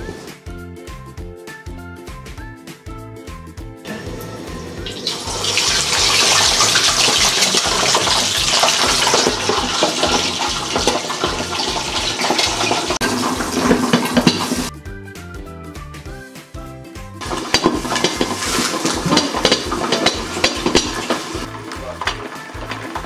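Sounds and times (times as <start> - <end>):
background music with steady beat: 0.0 - 23.0
hot oil sizzling and spattering: 4.7 - 14.7, 17.2 - 23.0.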